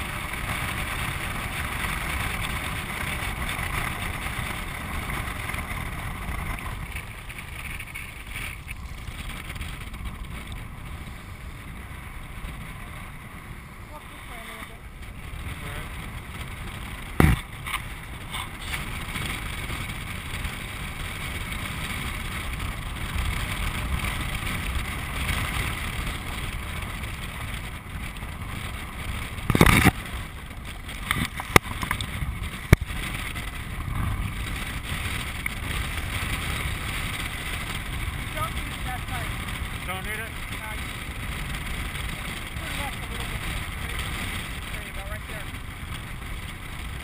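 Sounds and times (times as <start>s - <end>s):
rolling wheel noise: 0.0s - 47.0s
sharp knocks: 17.2s - 17.4s.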